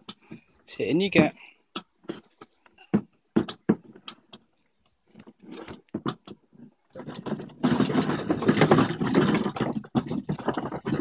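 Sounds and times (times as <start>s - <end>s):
plastic wheels rattling over concrete: 5.1s - 11.0s.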